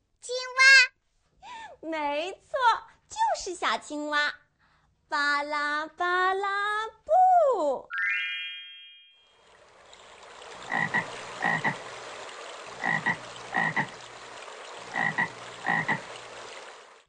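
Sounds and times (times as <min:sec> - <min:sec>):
frog croaking: 0:10.6 - 0:11.9, 0:12.7 - 0:14.2, 0:14.8 - 0:16.1.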